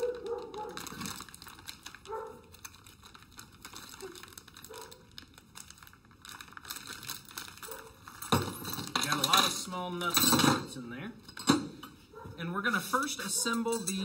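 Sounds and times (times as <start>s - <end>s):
plastic bag crinkling: 0.0s - 10.1s.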